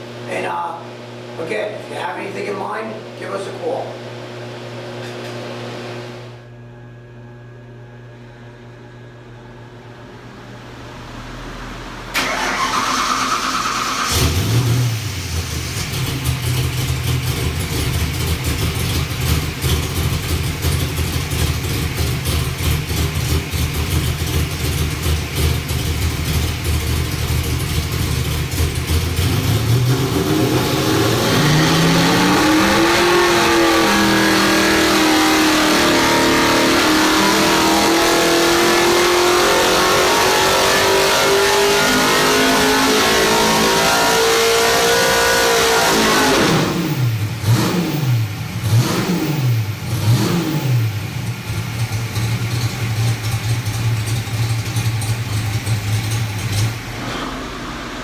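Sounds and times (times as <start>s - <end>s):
race engine revving at full throttle: 28.8s - 51.5s.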